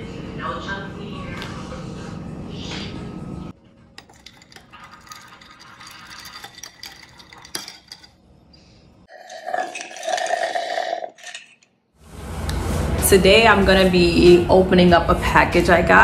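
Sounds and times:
ice clinking against glass: 0:04.0 - 0:08.2, 0:09.1 - 0:11.7
metal straw stirring ice in glass: 0:04.0 - 0:08.2, 0:09.1 - 0:11.6.

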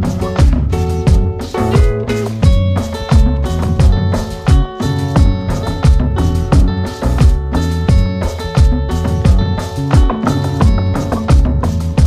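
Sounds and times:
low drum hits: 0:00.0 - 0:11.6
held music notes: 0:00.0 - 0:12.0.

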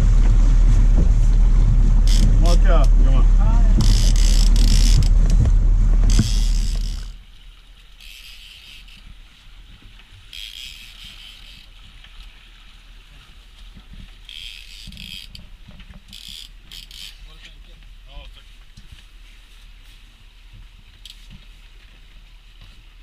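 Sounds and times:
wind rushing: 0:00.0 - 0:06.8
hissing wind gusts: 0:00.0 - 0:07.2
low steady rumble: 0:00.0 - 0:08.0.

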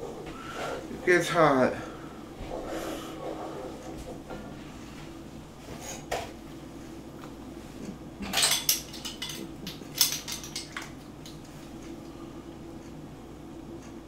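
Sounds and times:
steady low hum: 0:00.0 - 0:14.0
kitchenware clinking: 0:08.2 - 0:11.4.

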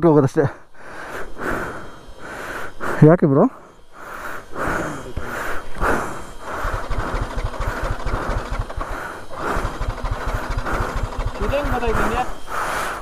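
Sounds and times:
pulsing hiss: 0:00.2 - 0:13.0
motorcycle engine idling: 0:03.6 - 0:13.0.

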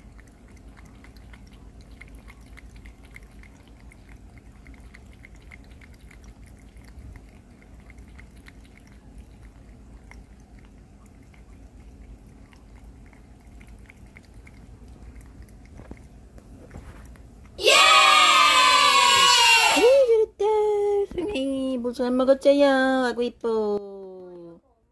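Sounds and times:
cat lapping water: 0:00.0 - 0:17.6
faint steady low hum: 0:00.0 - 0:24.9.

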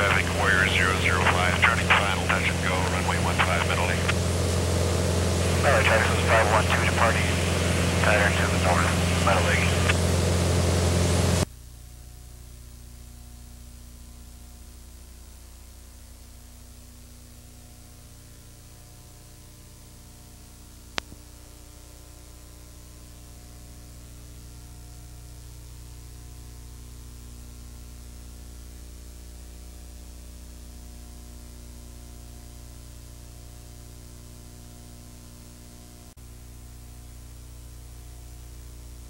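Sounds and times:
steady hiss: 0:00.0 - 0:11.4
propeller plane engine droning: 0:00.0 - 0:11.5.

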